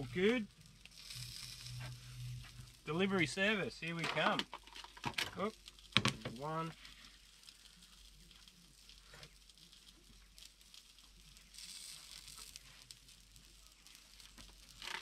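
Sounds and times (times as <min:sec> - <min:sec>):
soft hiss: 0:00.0 - 0:15.0
clicks and rustles of handling food: 0:03.9 - 0:15.0.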